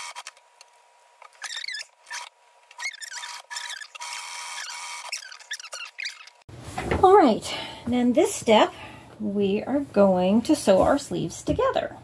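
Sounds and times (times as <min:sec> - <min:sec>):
short high squeaks: 0:01.3 - 0:06.5
sewing machine motor whine: 0:01.5 - 0:05.3.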